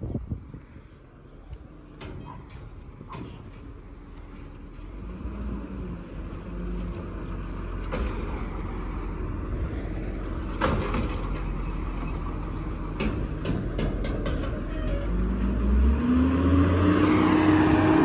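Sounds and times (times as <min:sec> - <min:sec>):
diesel engine running: 0:00.1 - 0:18.0
cart banging against truck: 0:02.0 - 0:03.8, 0:10.4 - 0:15.4.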